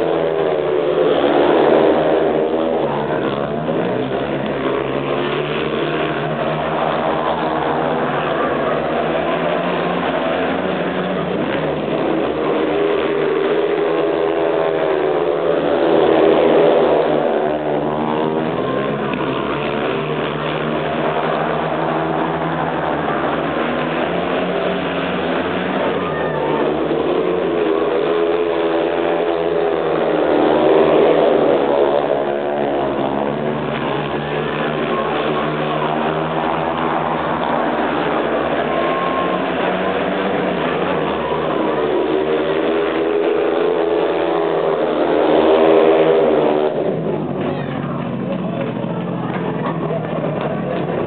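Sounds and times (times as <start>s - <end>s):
motorbikes racing at full throttle: 0.0s - 51.0s.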